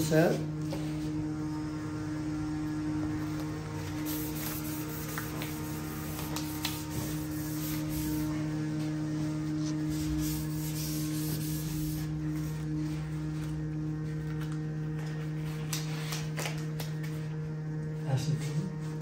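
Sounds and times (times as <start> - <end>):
steady low two-tone hum: 0.0 - 19.0
disposable gloves rustling and snapping: 3.3 - 6.9, 14.2 - 17.2.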